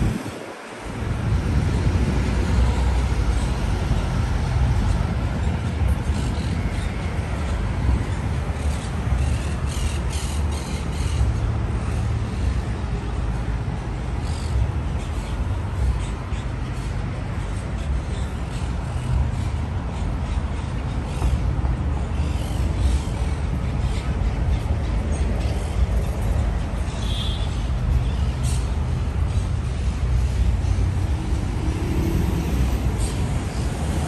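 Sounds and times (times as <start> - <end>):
passing traffic: 0.0 - 34.0.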